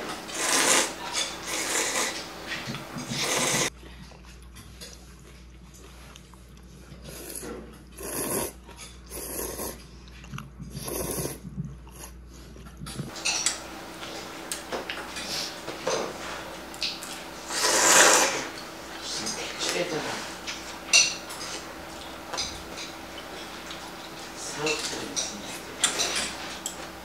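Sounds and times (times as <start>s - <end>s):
person slurping noodles: 0.3s - 2.2s, 3.0s - 3.7s, 7.1s - 9.8s, 10.8s - 11.4s, 17.4s - 18.5s
tableware clinking: 13.1s - 13.6s, 20.4s - 23.8s, 24.6s - 26.9s.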